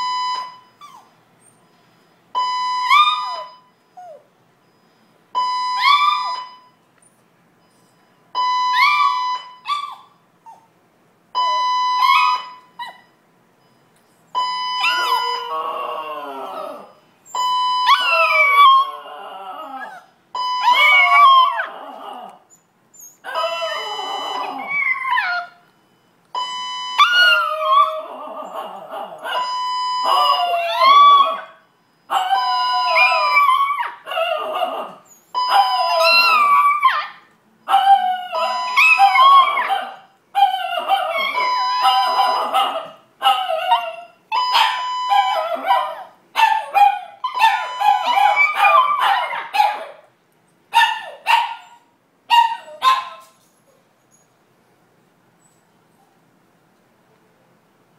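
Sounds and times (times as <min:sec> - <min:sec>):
fire alarm blasts: 0:00.0 - 0:00.8, 0:01.7 - 0:04.0, 0:04.6 - 0:06.8, 0:08.0 - 0:09.9, 0:11.4 - 0:12.8, 0:13.6 - 0:15.6, 0:16.9 - 0:18.9, 0:20.4 - 0:21.4, 0:23.5 - 0:27.9, 0:29.3 - 0:33.8, 0:35.3 - 0:36.8, 0:37.6 - 0:39.8, 0:40.8 - 0:42.8, 0:43.7 - 0:46.0, 0:47.2 - 0:49.1
dog yips: 0:02.9 - 0:04.2, 0:05.7 - 0:06.4, 0:08.7 - 0:10.7, 0:12.0 - 0:13.0, 0:14.8 - 0:15.4, 0:19.8 - 0:21.7, 0:23.0 - 0:25.6, 0:32.1 - 0:50.0, 0:50.8 - 0:53.4
dogs howling: 0:14.9 - 0:16.9, 0:17.9 - 0:20.0, 0:20.7 - 0:22.4, 0:23.3 - 0:25.6, 0:27.0 - 0:29.4, 0:30.1 - 0:31.5, 0:32.1 - 0:50.0.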